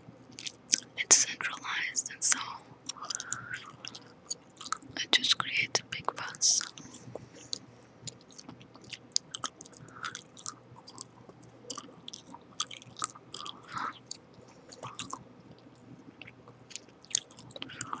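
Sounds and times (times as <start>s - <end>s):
mouth chewing gum smacks: 0.3s - 1.0s, 2.9s - 5.0s, 6.6s - 18.0s.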